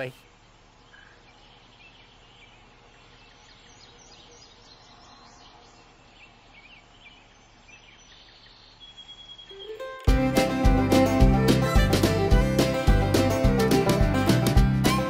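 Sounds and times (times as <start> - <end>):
birds chirping and twittering: 0.0 - 10.1
low steady background hiss: 0.0 - 10.1.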